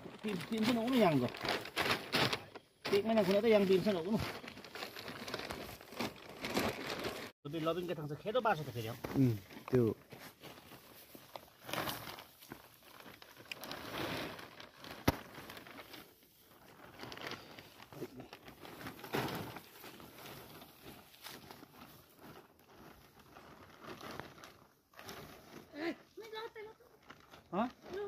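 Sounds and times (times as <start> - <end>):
plastic sack rustling and crinkling: 0.0 - 28.0.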